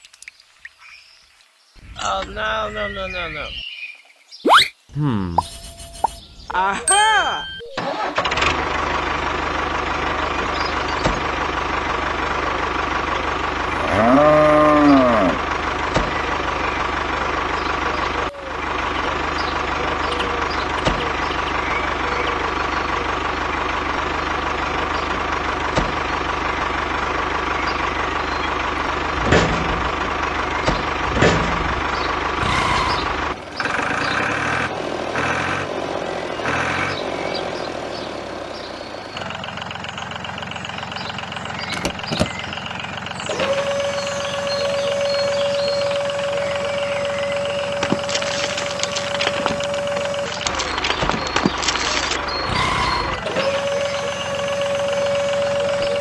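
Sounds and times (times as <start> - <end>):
tractor engine humming: 1.8 - 3.7, 4.5 - 56.0
cow mooing: 13.7 - 15.4.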